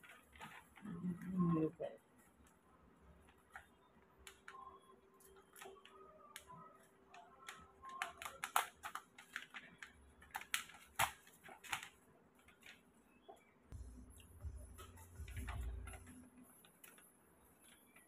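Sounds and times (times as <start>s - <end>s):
small clicks and taps: 3.2s - 13.5s
paper rustling: 8.0s - 13.0s.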